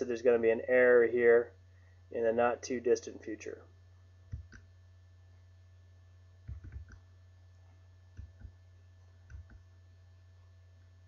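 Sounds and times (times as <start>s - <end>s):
low mains hum: 0.0s - 11.0s
faint computer clicks: 4.3s - 4.7s, 9.2s - 9.6s.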